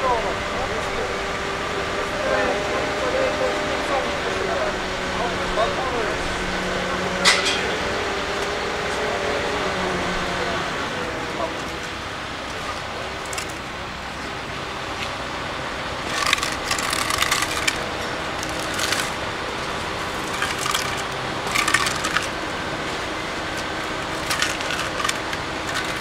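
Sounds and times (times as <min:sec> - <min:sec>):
steady background hum: 0:00.0 - 0:26.0
hard objects clattering: 0:07.2 - 0:08.6, 0:16.0 - 0:26.0.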